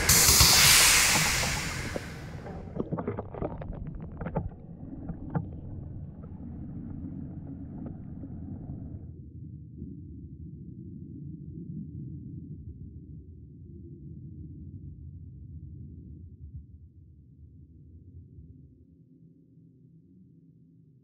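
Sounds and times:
sharp clicks and knocks: 0:00.0 - 0:03.4
muffled low underwater rumble: 0:00.0 - 0:19.1.

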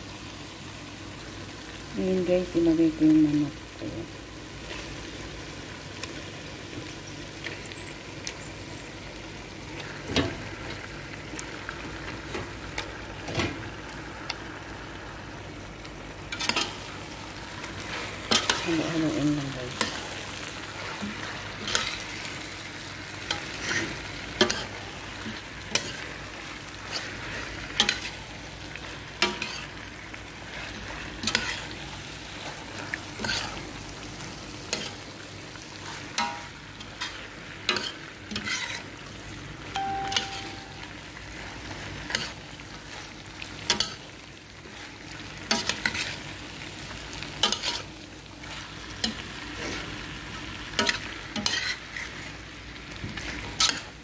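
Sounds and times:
food sizzling: 0:00.0 - 0:54.0.

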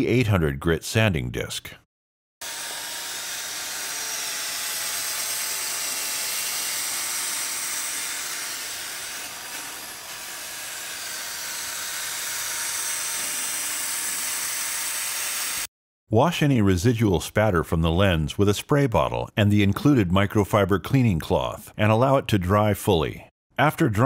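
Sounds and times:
electric drill sanding plastic: 0:02.4 - 0:15.7.

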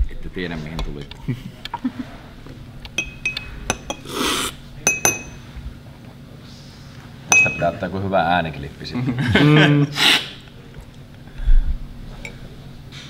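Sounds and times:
spoons clinking against glasses: 0:03.0 - 0:05.5, 0:07.3 - 0:07.8
slurp of coffee: 0:04.1 - 0:04.6.

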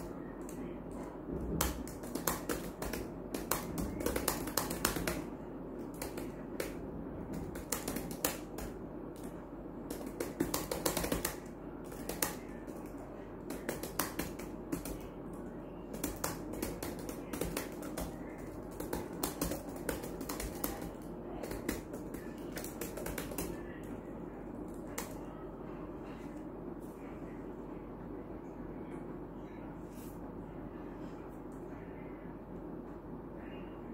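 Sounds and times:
laptop keyboard typing: 0:00.0 - 0:24.0, 0:24.6 - 0:25.4
steady low hum: 0:00.0 - 0:33.9.

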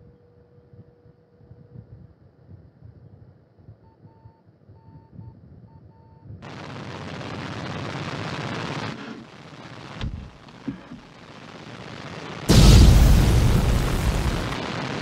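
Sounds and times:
faint low rumble: 0:09.6 - 0:15.0
loud rushing roar: 0:12.4 - 0:15.0.

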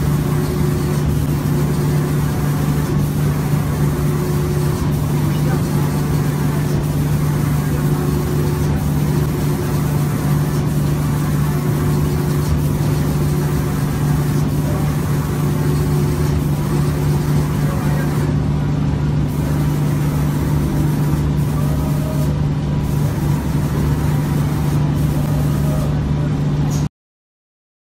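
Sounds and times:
spray hiss: 0:00.0 - 0:18.3
machine motor hum: 0:00.0 - 0:26.8.

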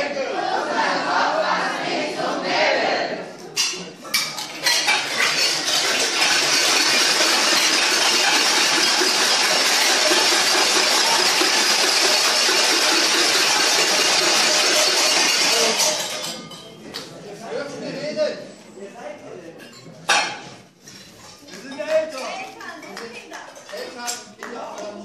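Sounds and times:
crowd making clattering noise: 0:03.2 - 0:17.4, 0:19.6 - 0:25.0
claps or knocks: 0:04.1 - 0:17.1, 0:21.7 - 0:25.0.

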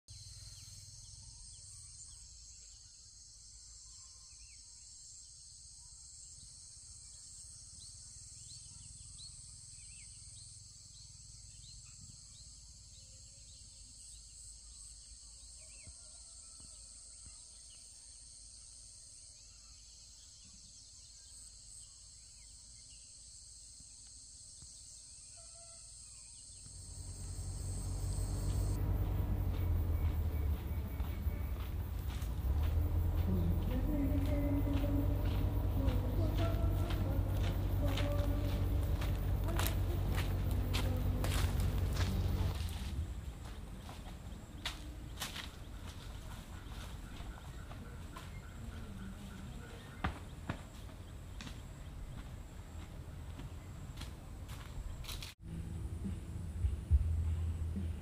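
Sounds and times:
insects chorus: 0:00.1 - 0:58.0
deep swelling sound: 0:26.7 - 0:43.8, 0:55.4 - 0:58.0
low rumble: 0:26.8 - 0:44.4, 0:55.4 - 0:58.0.

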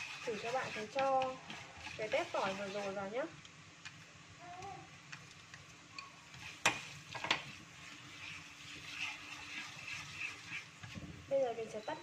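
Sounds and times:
oil sizzling in a pan: 0:00.0 - 0:12.0
chopsticks tapping a pan: 0:00.4 - 0:01.4, 0:05.1 - 0:07.6.

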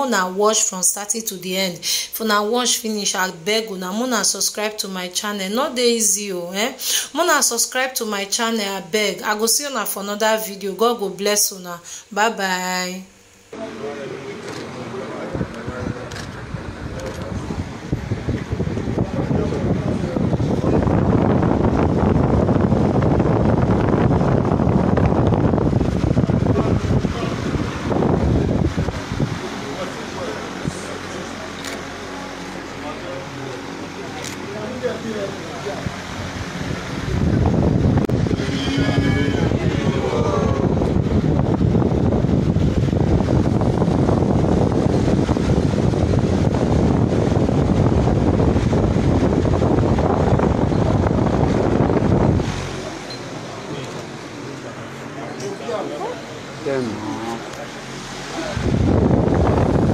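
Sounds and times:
crowded room din: 0:12.6 - 0:21.6, 0:25.9 - 0:41.5, 0:51.5 - 0:59.9.

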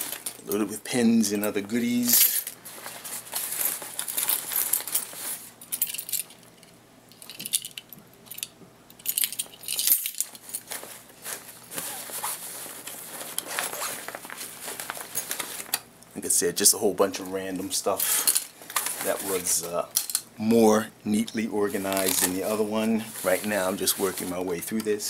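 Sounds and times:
fabric rustling: 0:02.0 - 0:05.6, 0:09.4 - 0:15.8, 0:21.6 - 0:24.6.

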